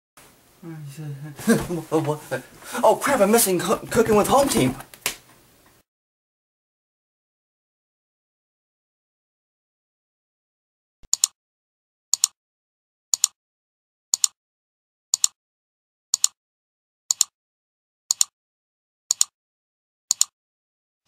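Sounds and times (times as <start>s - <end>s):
sharp double click ticking: 11.1s - 11.3s, 12.2s - 12.4s, 13.2s - 13.4s, 14.2s - 14.4s, 15.2s - 15.4s, 16.2s - 16.4s, 17.1s - 17.3s, 18.1s - 18.3s, 19.1s - 19.3s, 20.1s - 20.3s.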